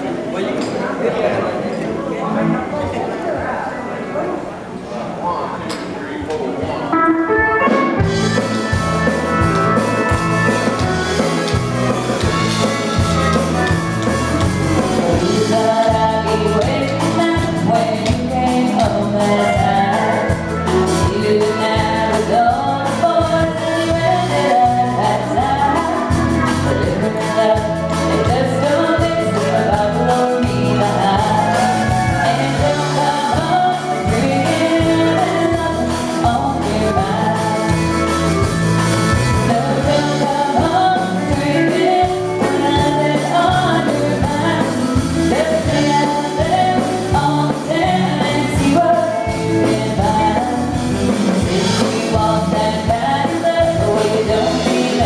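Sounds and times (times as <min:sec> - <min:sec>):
drums: 0:06.9 - 0:55.0
electric bass: 0:07.3 - 0:55.0
girl singing: 0:15.1 - 0:38.0, 0:39.4 - 0:50.8, 0:51.4 - 0:55.0.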